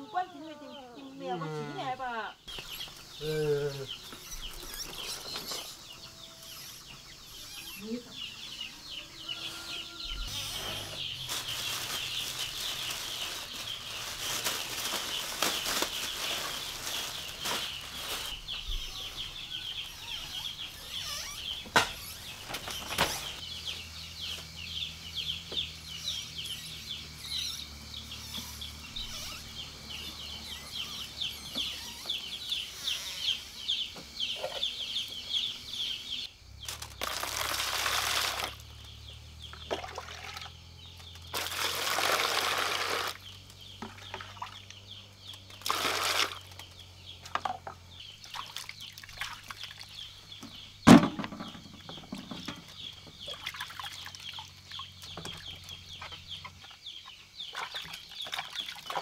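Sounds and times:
rapid high chirping: 15.0s - 23.9s, 25.9s - 36.3s
water pouring into plastic basin: 36.9s - 38.6s, 39.6s - 40.5s, 41.3s - 43.2s, 45.6s - 46.5s.

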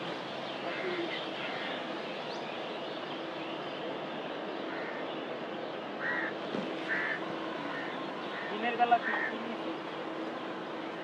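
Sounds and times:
city park background din: 0.0s - 11.0s
crow cawing: 0.7s - 1.8s, 6.0s - 9.4s.

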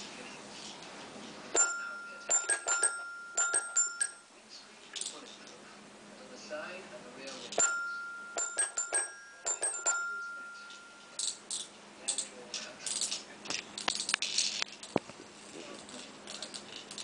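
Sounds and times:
toy chime notes: 1.6s - 4.2s, 7.6s - 11.4s.

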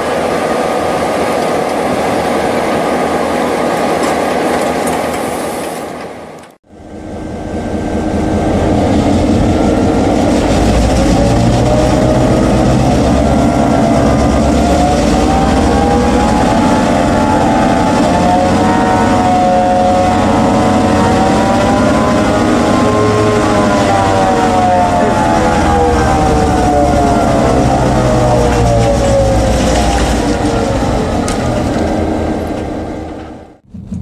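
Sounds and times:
diesel locomotive engine running: 0.0s - 34.0s.

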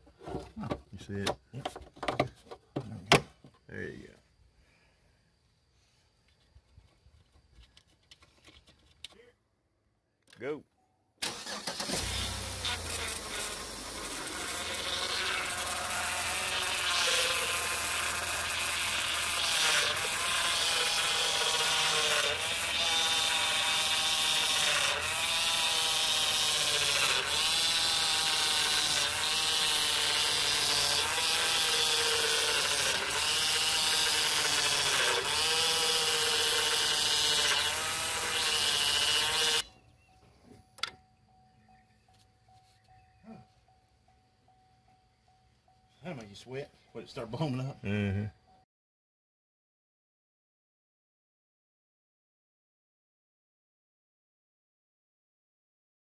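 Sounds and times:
power steering pump whining: 11.2s - 21.6s.

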